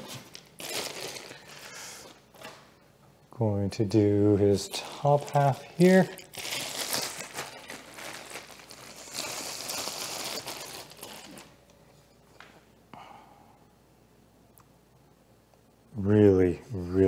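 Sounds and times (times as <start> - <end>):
plastic bag crinkling: 0.0 - 2.5, 4.6 - 11.6.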